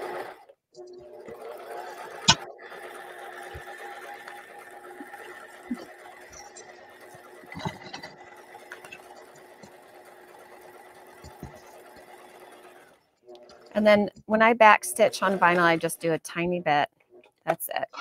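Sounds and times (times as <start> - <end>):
electric sewing machine running: 0.0 - 14.0, 14.7 - 16.1.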